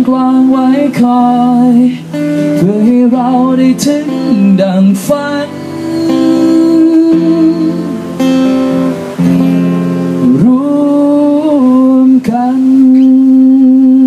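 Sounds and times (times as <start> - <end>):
man singing without words: 0.0 - 8.2, 10.1 - 14.0
acoustic guitar: 0.0 - 14.0.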